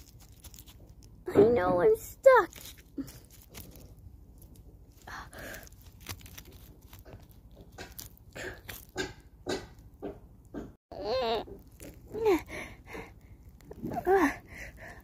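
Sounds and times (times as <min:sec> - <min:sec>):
twigs crackling: 0:00.0 - 0:01.3, 0:02.0 - 0:09.2, 0:11.5 - 0:12.4.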